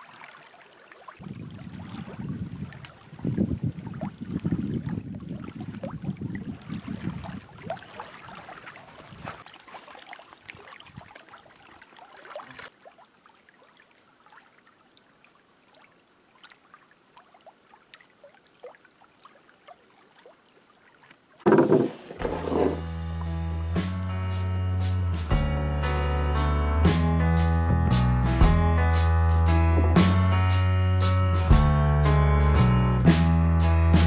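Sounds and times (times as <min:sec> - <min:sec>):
small waves lapping on rocks: 0:00.0 - 0:22.2
wind rumbling on microphone: 0:01.2 - 0:07.9, 0:08.9 - 0:09.4, 0:10.8 - 0:11.2.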